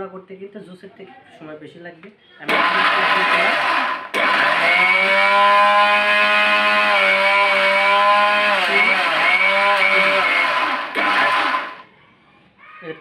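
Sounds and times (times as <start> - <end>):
mixer grinder motor whining: 2.5 - 11.9.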